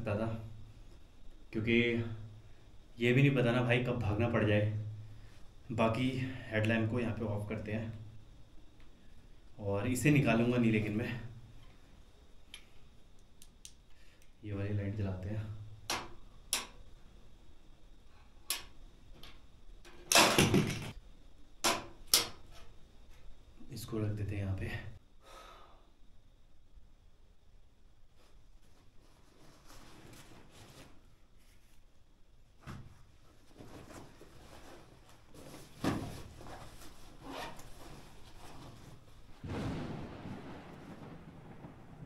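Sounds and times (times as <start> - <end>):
crackling rustle: 28.1 - 32.1, 33.0 - 42.0
camping gear rustling and knocking: 32.6 - 39.4.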